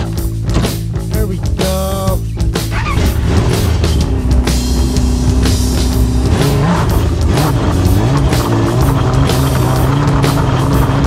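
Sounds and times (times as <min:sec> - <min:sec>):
background music: 0:00.0 - 0:11.0
snowmobile engine under load: 0:02.7 - 0:11.0.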